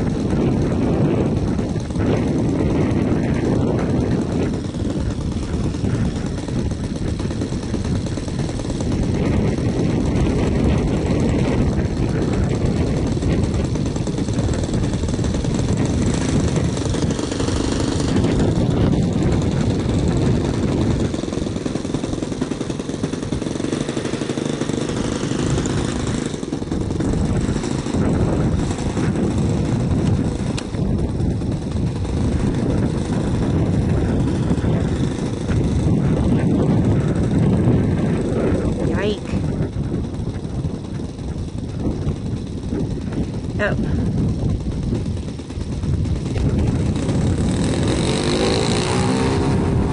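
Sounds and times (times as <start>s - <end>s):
model plane engine running: 0.0s - 49.9s.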